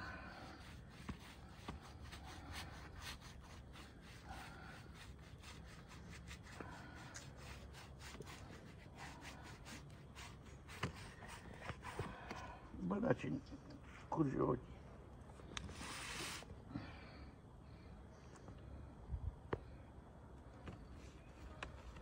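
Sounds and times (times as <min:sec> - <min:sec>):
paintbrush rubbing on wood: 0:00.0 - 0:12.4.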